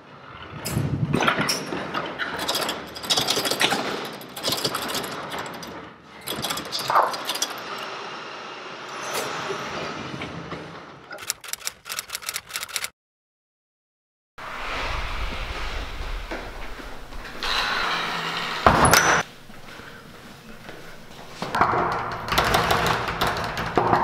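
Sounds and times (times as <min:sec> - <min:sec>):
glass door rattling and clacking: 0:01.1 - 0:07.9, 0:21.6 - 0:24.0.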